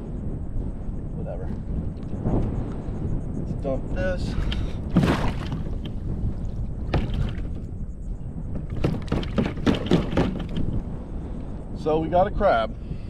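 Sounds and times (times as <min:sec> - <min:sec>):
water splashing around kayak: 0:04.2 - 0:07.7, 0:08.7 - 0:10.8
sharp knocks: 0:04.9 - 0:06.0, 0:06.9 - 0:07.6, 0:08.7 - 0:10.8.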